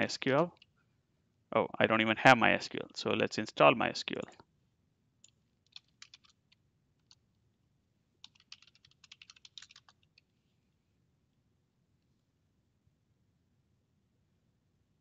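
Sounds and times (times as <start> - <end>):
keyboard typing: 5.2 - 7.2, 8.2 - 10.3.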